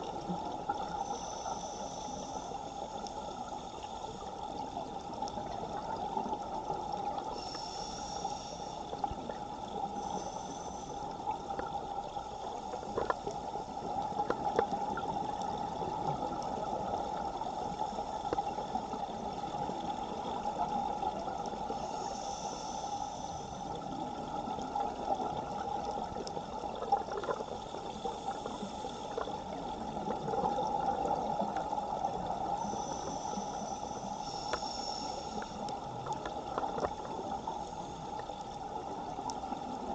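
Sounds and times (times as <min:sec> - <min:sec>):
gurgling water: 0:00.0 - 0:01.8, 0:23.1 - 0:39.9.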